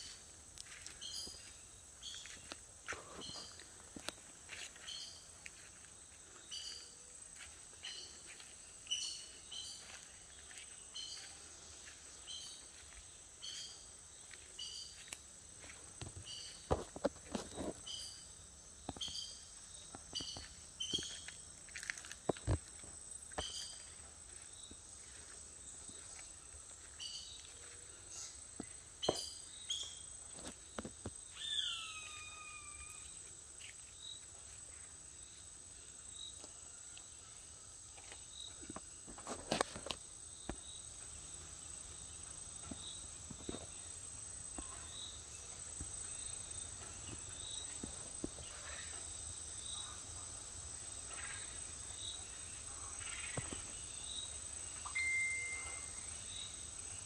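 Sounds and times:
birds calling with short high notes: 0:31.3 - 0:33.0, 0:54.8 - 0:56.6.

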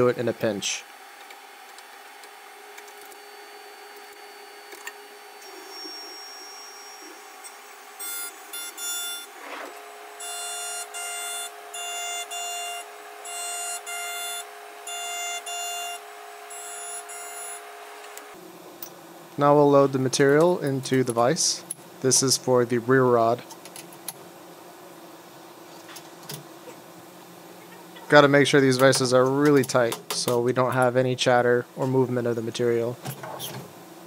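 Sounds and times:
milling machine hum: 0:00.0 - 0:18.5
high ringing cutter whine: 0:02.5 - 0:18.4.

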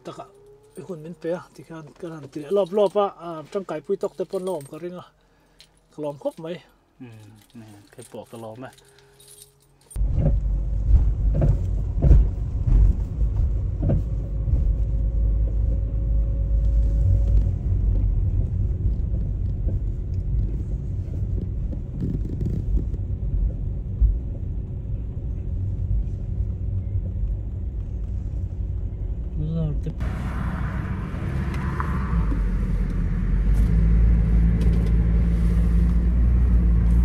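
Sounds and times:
car engine and road rumble: 0:00.0 - 0:37.0.

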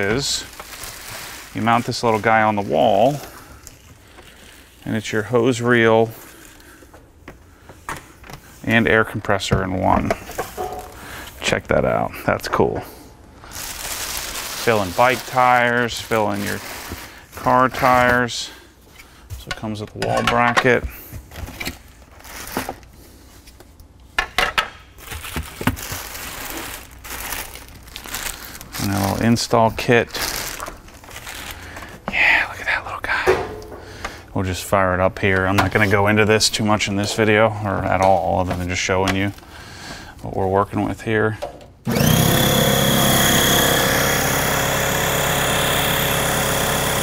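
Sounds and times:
packaging rustling: 0:00.0 - 0:05.1, 0:10.2 - 0:11.2, 0:13.4 - 0:18.4, 0:21.3 - 0:23.6, 0:25.0 - 0:32.0
parts knocking on metal workbench: 0:33.3 - 0:33.9
air compressor running: 0:41.9 - 0:47.0.

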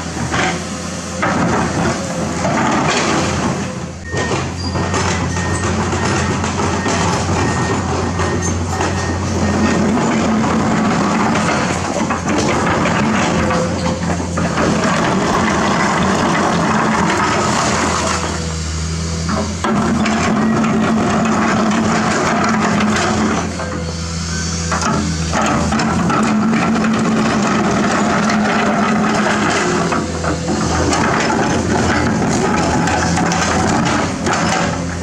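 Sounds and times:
excavator diesel engine running: 0:00.0 - 0:35.0
steel bucket scraping rocks: 0:25.4 - 0:35.0.

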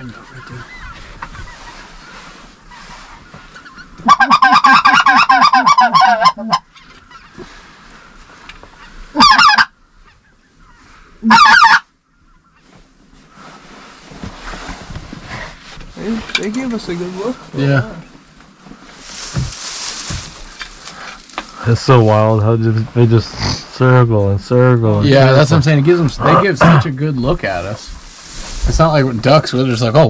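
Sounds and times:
flock of geese calling: 0:00.0 - 0:13.6
goose call quavering clucks: 0:02.7 - 0:07.5, 0:08.7 - 0:12.6.

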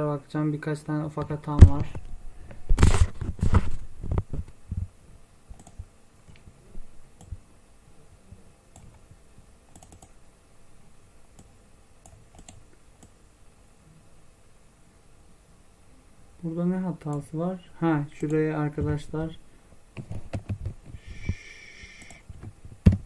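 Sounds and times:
computer mouse clicks: 0:05.5 - 0:06.5, 0:09.7 - 0:10.2, 0:11.4 - 0:13.2, 0:21.3 - 0:22.2.

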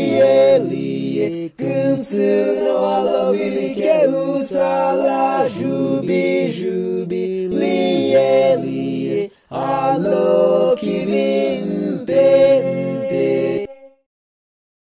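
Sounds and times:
voices singing a hymn a cappella: 0:00.0 - 0:14.0
short breath: 0:09.3 - 0:09.5.

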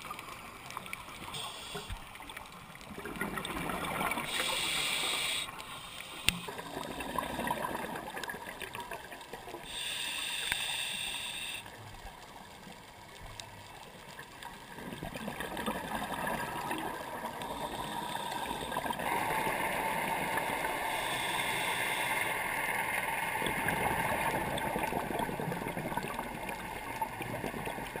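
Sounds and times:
steady underwater rush: 0:00.0 - 0:11.9, 0:14.5 - 0:28.0
exhaled bubbles underwater: 0:02.2 - 0:05.7, 0:06.4 - 0:09.8, 0:14.6 - 0:21.2, 0:22.8 - 0:28.0.

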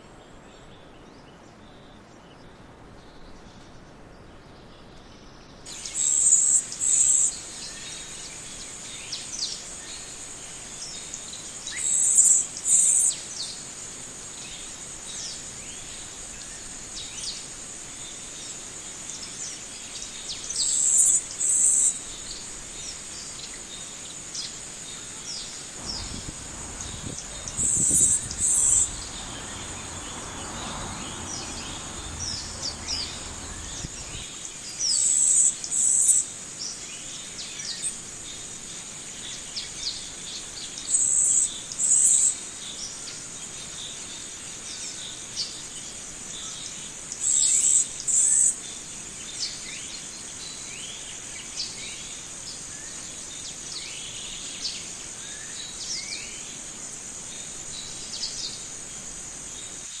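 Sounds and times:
high insect drone: 0:05.7 - 1:00.0
high buzzing bursts: 0:25.8 - 0:30.2
birds chirping and calling: 0:25.8 - 0:34.4.

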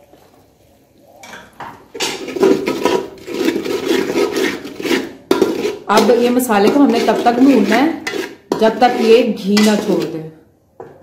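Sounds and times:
metal spoon scraping a pot: 0:01.9 - 0:10.3.

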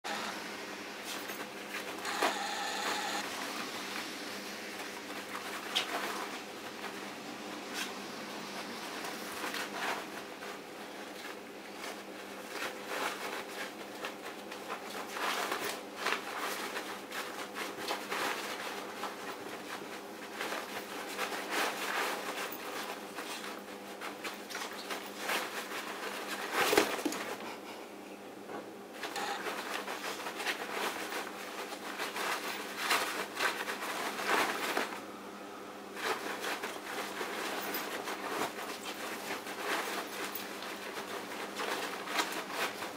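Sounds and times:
fabric rustling and scratching: 0:00.1 - 0:27.8, 0:28.6 - 0:35.2, 0:35.9 - 0:42.9.

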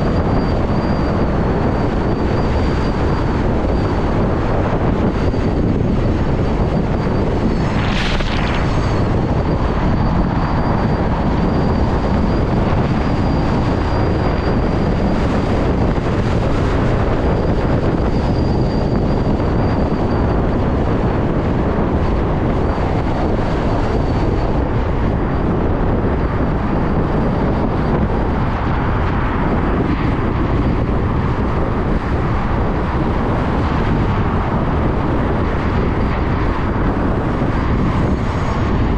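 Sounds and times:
thin high whine: 0:00.0 - 0:20.4
tire and road noise while riding: 0:00.0 - 0:38.9
wind noise on microphone: 0:00.0 - 0:38.9.

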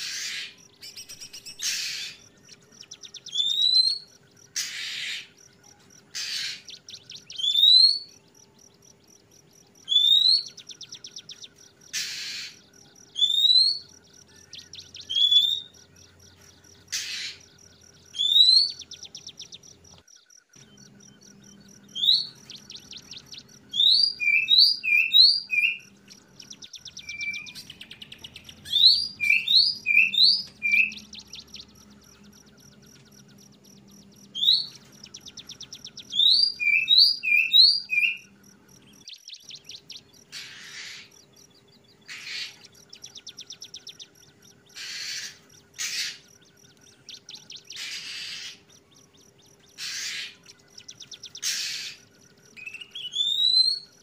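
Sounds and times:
harsh rasping bird calls: 0:00.0 - 0:08.2, 0:09.6 - 0:54.0
ticking bird chatter: 0:00.0 - 0:54.0
bird upslurred whistles: 0:03.1 - 0:05.3, 0:13.2 - 0:13.8, 0:23.7 - 0:25.9, 0:26.6 - 0:31.3, 0:34.3 - 0:38.2, 0:52.6 - 0:53.9
faint low hum: 0:13.8 - 0:53.1.

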